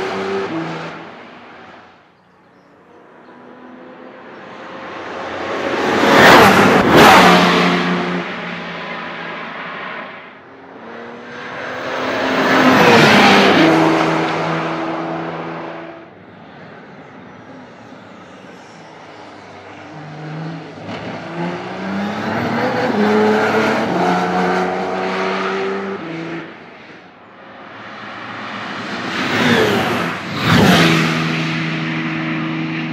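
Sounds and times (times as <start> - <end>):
racing car engine passing: 3.4 - 27.1.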